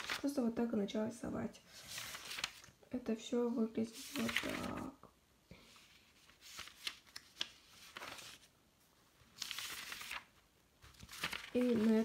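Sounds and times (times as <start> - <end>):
paper pages rustling: 0.0 - 0.5, 1.7 - 2.8, 3.8 - 5.0, 5.7 - 12.0.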